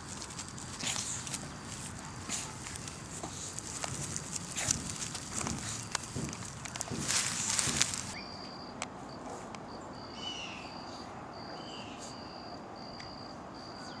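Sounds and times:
rustling noise: 0.0s - 8.2s.

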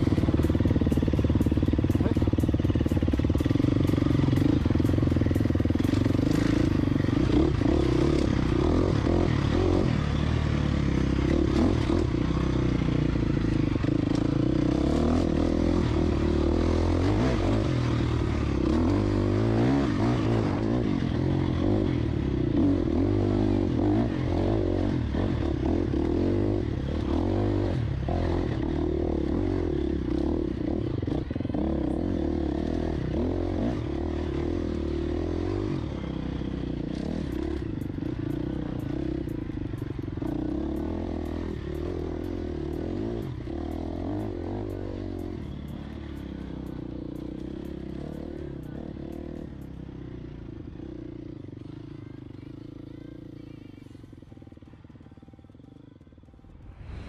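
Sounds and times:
dirt bike engine revving: 0.0s - 39.6s.

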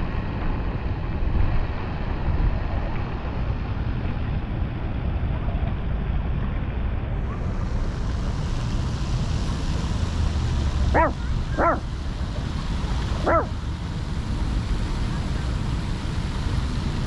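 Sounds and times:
dog barking: 10.9s - 11.9s, 13.2s - 13.6s.

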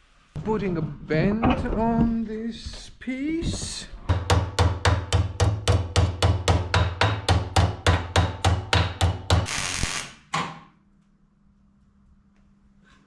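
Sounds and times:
hammer beating sheet steel: 4.0s - 9.5s.

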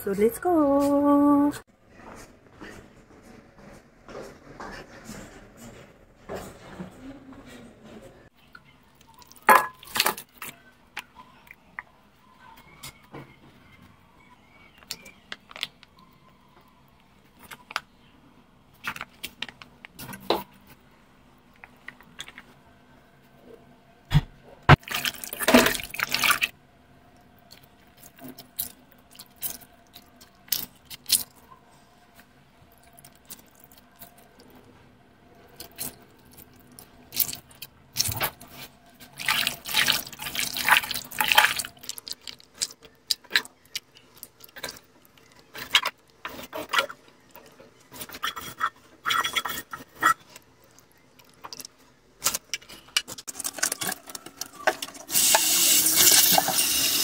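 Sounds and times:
wet squelching of raw meat: 35.6s - 47.4s.

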